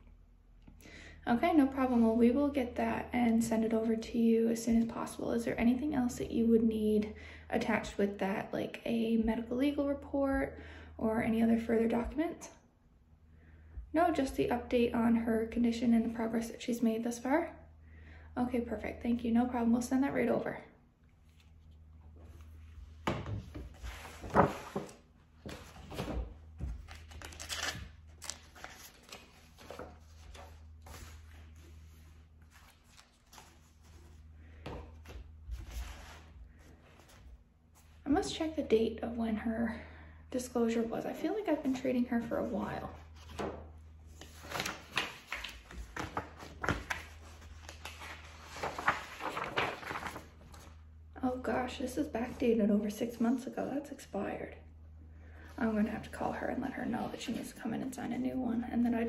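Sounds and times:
paper rustling: 21.2s - 38.0s, 42.9s - 50.8s.

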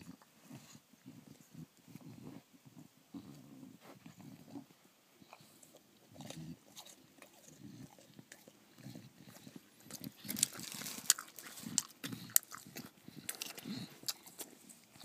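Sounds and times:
dog chewing crunchy cracker: 5.2s - 15.0s.

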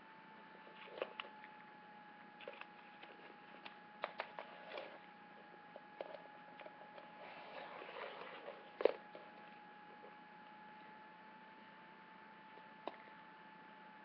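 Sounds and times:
faint high hum: 0.0s - 14.0s
soft rustle: 6.7s - 10.2s.

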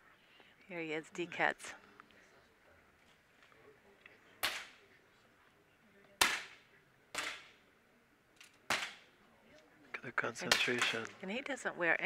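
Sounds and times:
air pistol shots with echo: 6.2s - 6.6s.

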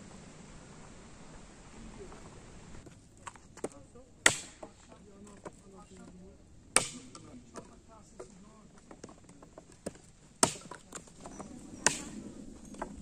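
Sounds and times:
wooden logs knocking: 2.8s - 13.0s.

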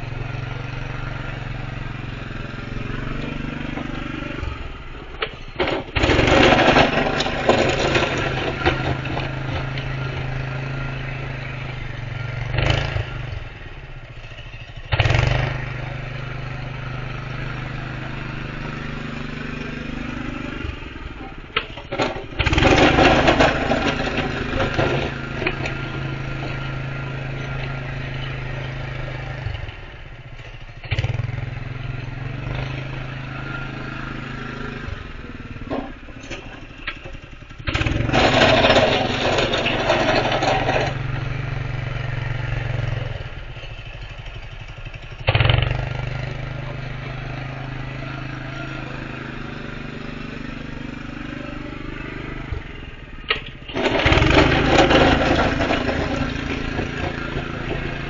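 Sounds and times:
snow plow engine running: 0.0s - 58.0s.

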